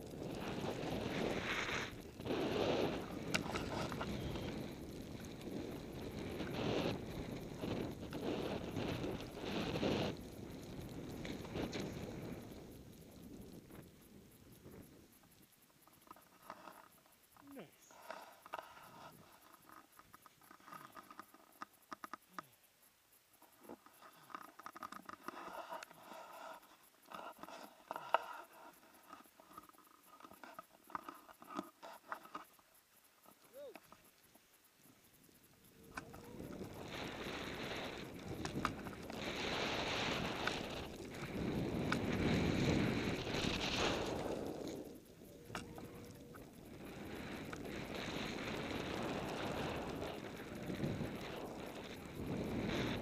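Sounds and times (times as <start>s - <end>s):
skis rushing through powder snow: 0.0s - 12.5s, 36.2s - 53.0s
sharp clicks: 13.7s - 22.6s.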